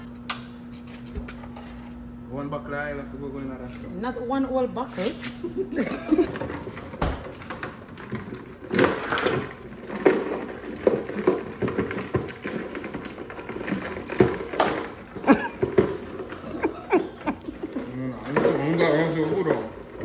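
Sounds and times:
crabs clattering in plastic tub: 6.1 - 17.2.

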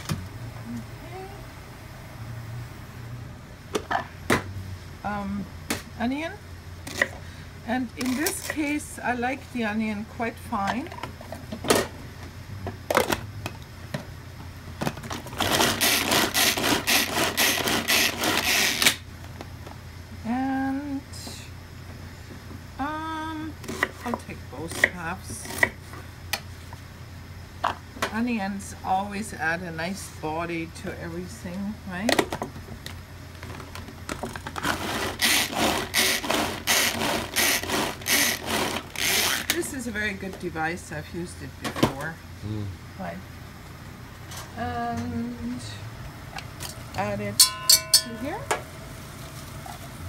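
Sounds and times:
onion rattling in food chopper: 15.0 - 19.0, 33.5 - 39.6.

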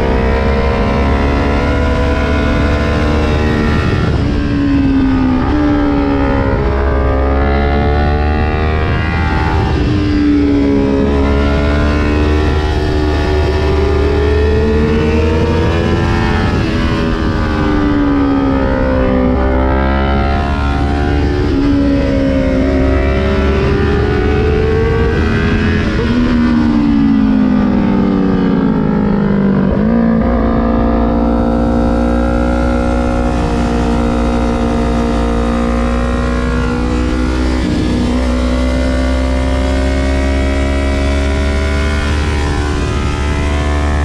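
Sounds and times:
motorcycle engine revving: 0.0 - 44.0
wind rush on microphone: 0.0 - 44.0.

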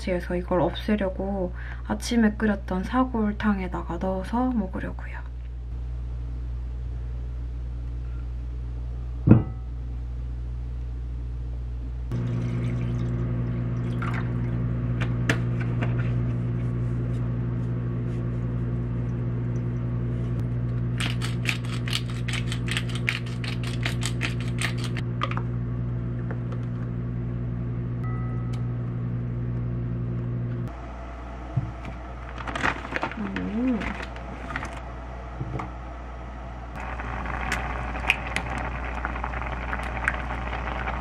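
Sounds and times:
low electric hum: 0.0 - 41.0
pepper grinder crackling: 21.0 - 25.0.

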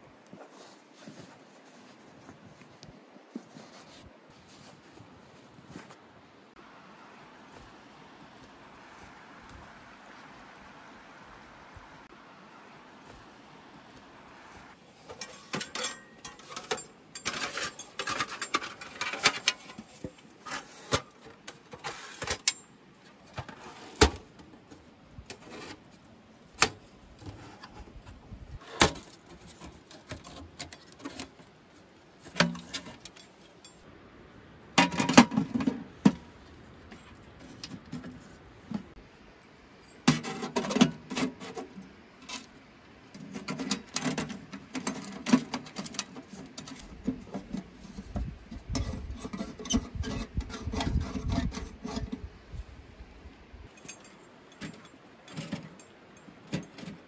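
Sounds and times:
metal clicks and knocks: 15.1 - 20.2
metal clattering: 15.1 - 22.6.

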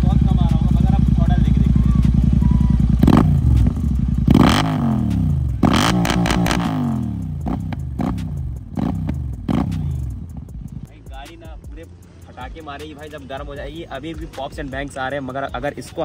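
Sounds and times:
motorcycle engine revving: 0.0 - 10.9
exhaust pops and bangs: 2.0 - 10.9.

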